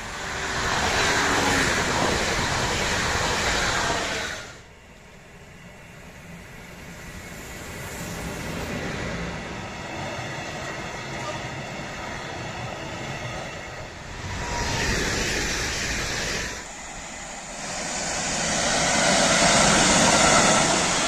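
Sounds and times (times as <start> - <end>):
electric train passing: 0.0 - 21.0
freight train rumble: 0.0 - 21.0.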